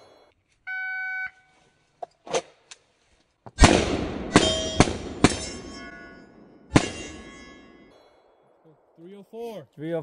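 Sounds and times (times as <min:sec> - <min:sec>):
steel targets ringing: 0:04.3 - 0:07.9.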